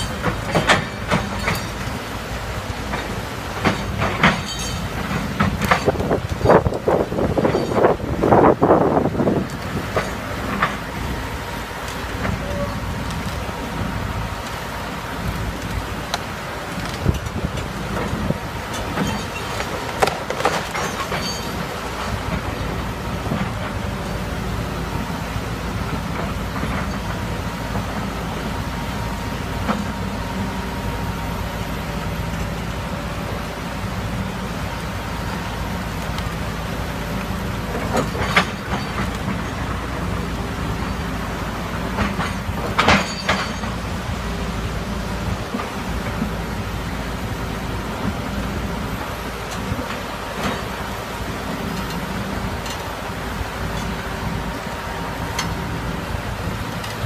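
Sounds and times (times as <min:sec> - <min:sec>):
sharp knocks and clanks: 0:00.0 - 0:01.9, 0:02.9 - 0:08.0, 0:42.0 - 0:43.9
excavator diesel engine: 0:00.0 - 0:57.0
river rushing: 0:00.0 - 0:57.0.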